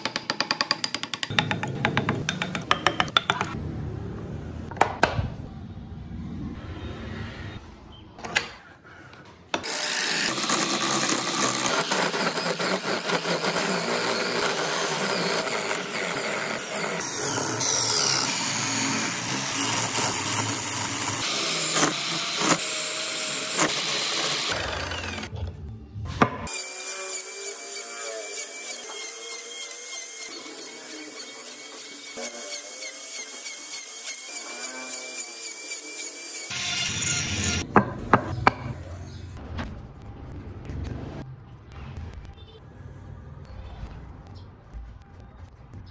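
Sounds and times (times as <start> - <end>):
rotary tool high whine: 9.6 - 25.3, 26.5 - 37.6
chisel scraping turning wood: 10.2 - 17.8.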